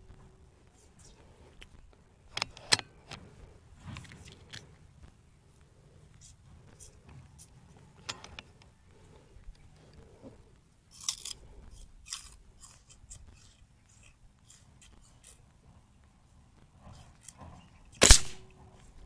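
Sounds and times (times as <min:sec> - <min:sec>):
air rifle loading clicks: 0:02.3 - 0:03.3, 0:04.0 - 0:04.8, 0:08.0 - 0:08.7, 0:18.0 - 0:18.5.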